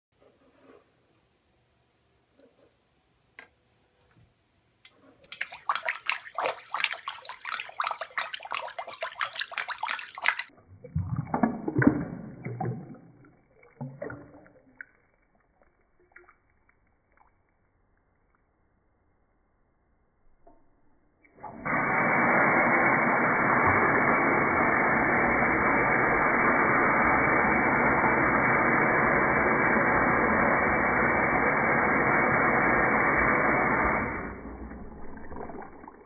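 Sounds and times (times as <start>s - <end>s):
sink draining gurgle: 5.2s - 16.3s, 25.7s - 36.0s
water splashing into sink: 5.2s - 17.5s, 33.5s - 36.0s.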